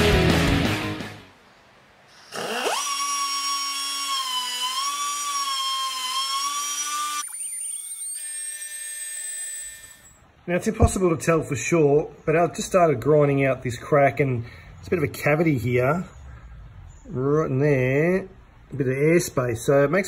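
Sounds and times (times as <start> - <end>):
die grinder whining: 2.2 - 10.2.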